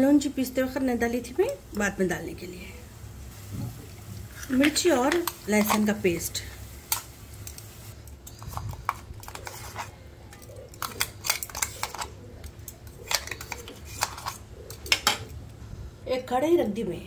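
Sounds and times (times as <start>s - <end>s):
spoon scraping metal jar: 8.2s - 12.2s, 12.9s - 15.0s.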